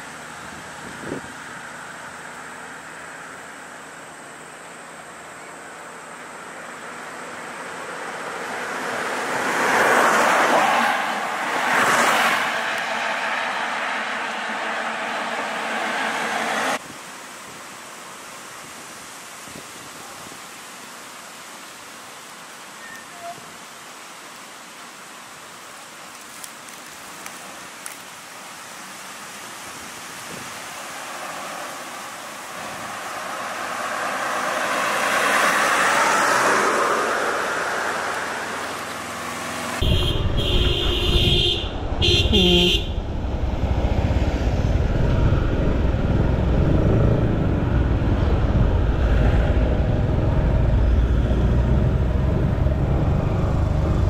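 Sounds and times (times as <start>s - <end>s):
low rumble of traffic: 0.0s - 19.2s, 24.4s - 54.0s
vehicle passing: 7.7s - 16.8s, 30.9s - 54.0s
car horn blasts: 39.8s - 43.0s.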